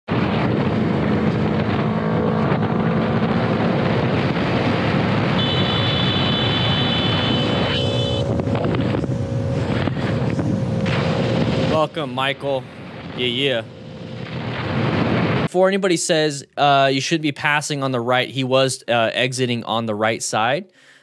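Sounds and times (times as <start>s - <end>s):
motorcycle engine: 0.1s - 15.5s
traffic noise: 0.1s - 15.5s
wind rushing over microphone: 0.1s - 15.5s.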